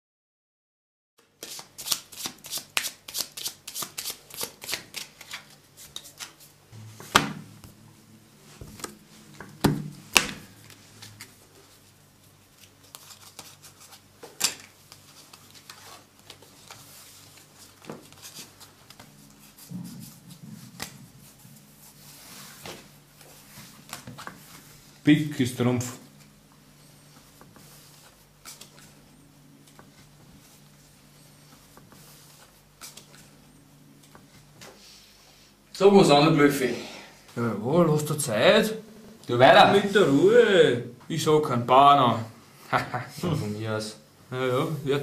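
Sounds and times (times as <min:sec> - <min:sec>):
cards slapping on table: 0:01.4 - 0:06.4, 0:08.6 - 0:10.8
playing cards shuffling: 0:01.4 - 0:06.6, 0:08.6 - 0:24.7, 0:27.1 - 0:29.0, 0:31.5 - 0:33.4
faint low hum: 0:06.6 - 0:45.0.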